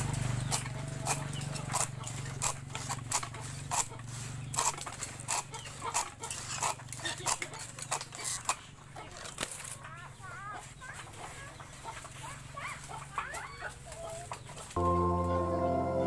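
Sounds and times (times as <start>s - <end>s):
knife chopping dried slats: 0.4s - 8.5s.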